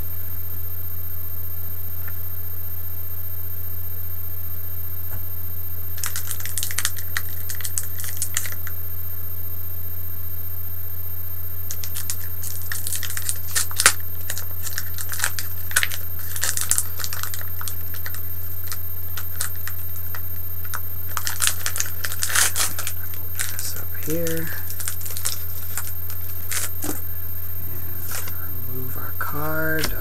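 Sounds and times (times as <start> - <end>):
steady low hum: 0.0 - 30.0
foil pack crinkling: 6.0 - 8.8, 11.7 - 28.6.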